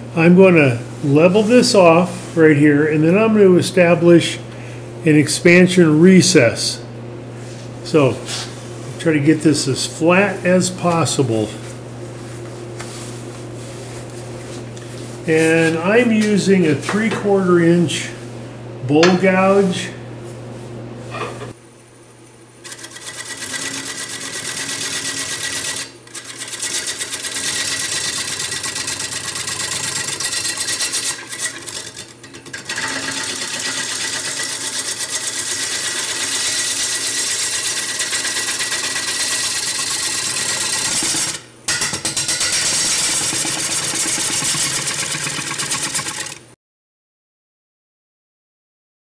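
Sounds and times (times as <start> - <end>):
lathe gouge scraping wood: 22.6 - 41.4, 42.2 - 46.4.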